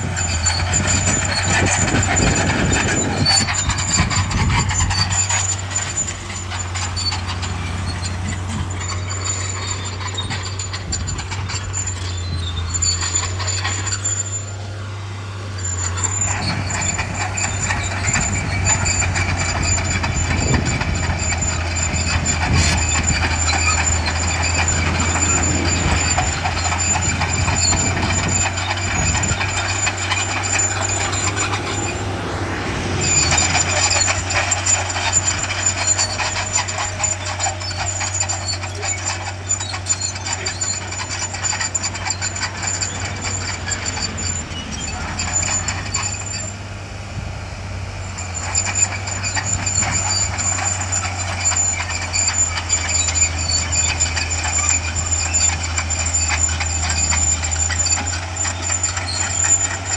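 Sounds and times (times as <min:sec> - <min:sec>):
bulldozer diesel engine running: 0:00.0 - 0:59.9.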